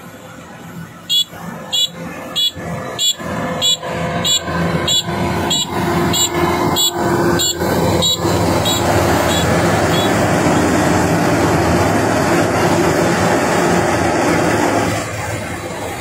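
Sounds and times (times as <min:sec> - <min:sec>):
combine harvester drone: 0:00.0 - 0:16.0
short high beeps: 0:01.1 - 0:10.1.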